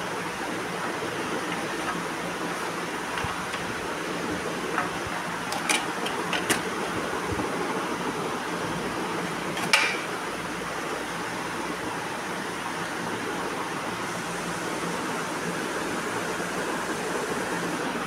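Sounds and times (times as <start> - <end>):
steady room noise hiss: 0.0 - 18.0.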